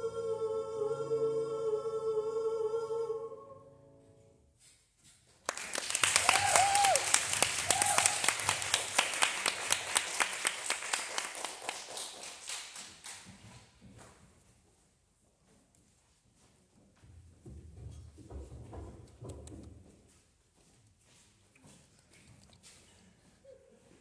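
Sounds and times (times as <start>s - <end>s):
audience applause: 5.5s - 13.2s
whoops: 6.0s - 8.4s.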